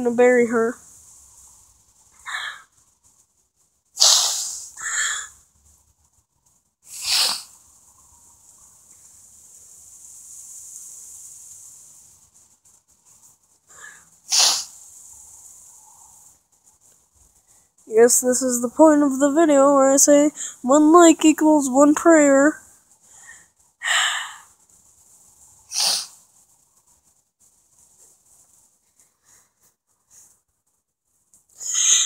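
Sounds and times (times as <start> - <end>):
faint hiss: 0.0 - 32.0
person sniffling: 6.9 - 7.5, 31.6 - 32.0.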